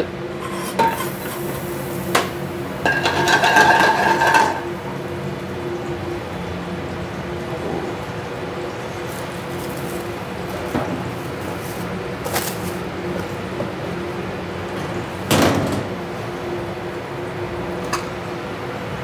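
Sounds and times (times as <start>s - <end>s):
range hood hum: 0.0s - 19.0s.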